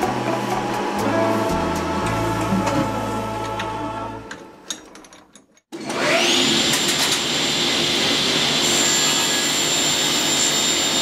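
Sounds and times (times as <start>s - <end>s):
table saw running with whine: 5.8s - 11.0s.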